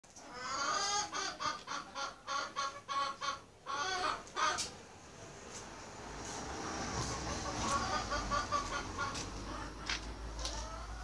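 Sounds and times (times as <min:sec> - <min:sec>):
hen cackling: 0:00.2 - 0:04.7, 0:07.0 - 0:11.0.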